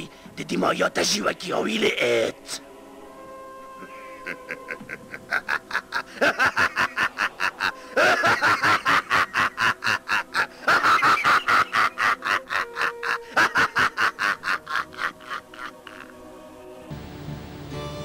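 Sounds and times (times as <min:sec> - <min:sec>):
man laughing loudly: 0:04.2 - 0:16.2.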